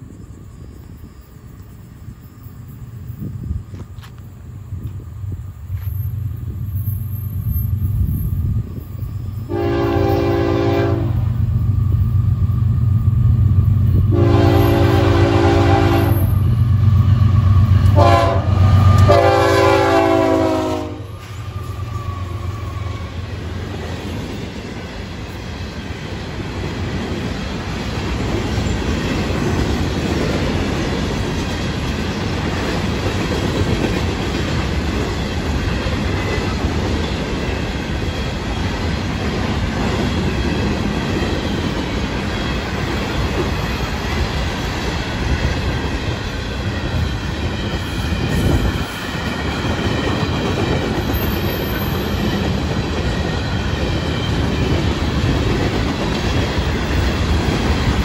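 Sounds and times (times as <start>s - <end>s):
train wheels rumbling on rails: 0.0s - 58.0s
locomotive horn: 9.5s - 11.4s, 14.1s - 16.4s, 17.8s - 21.4s.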